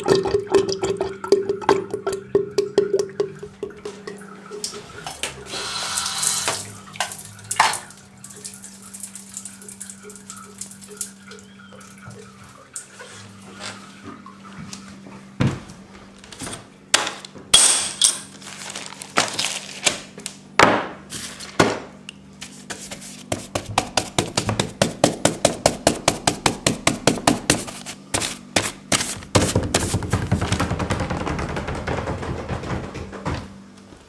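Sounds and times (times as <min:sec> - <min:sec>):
hard objects knocking and clacking: 0:29.4 - 0:33.6.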